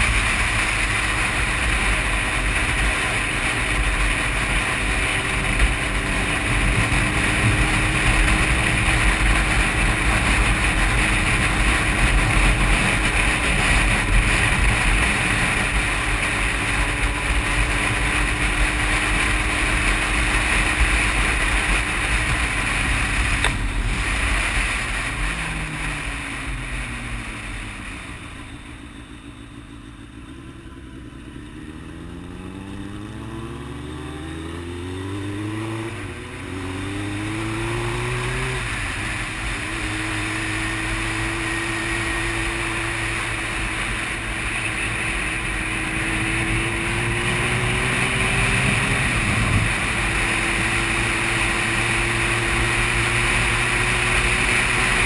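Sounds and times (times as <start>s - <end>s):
wind rush: 0.0s - 28.0s, 44.8s - 54.8s
motorcycle engine: 0.0s - 55.0s.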